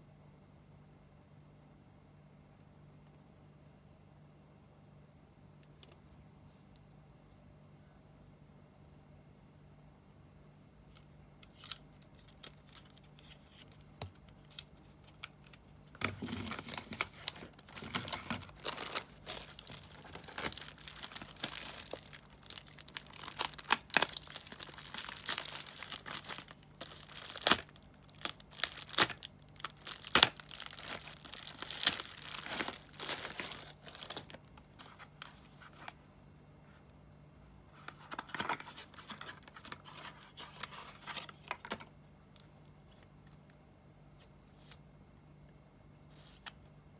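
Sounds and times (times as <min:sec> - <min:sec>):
plastic bag crinkling and tearing: 0:14.4 - 0:35.5.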